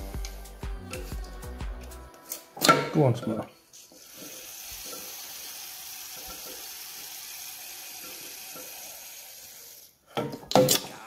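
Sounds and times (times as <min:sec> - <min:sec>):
suction gun watery hiss: 0:03.8 - 0:09.9.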